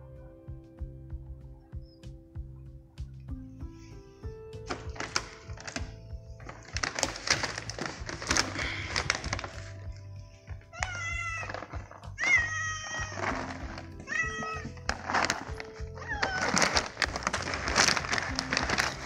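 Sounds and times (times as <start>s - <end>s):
background music: 0.0s - 19.0s
plastic bag crinkling: 4.7s - 19.0s
cats meowing: 8.1s - 19.0s.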